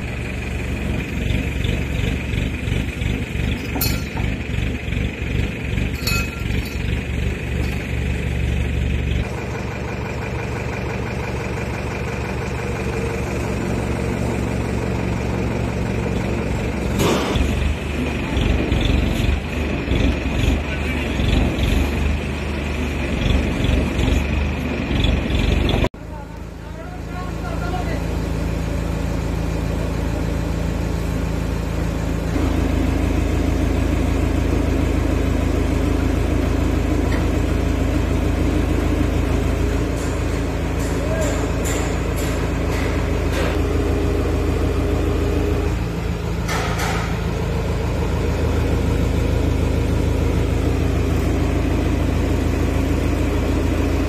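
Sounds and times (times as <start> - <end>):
crane diesel engine throbbing: 0.0 - 54.0.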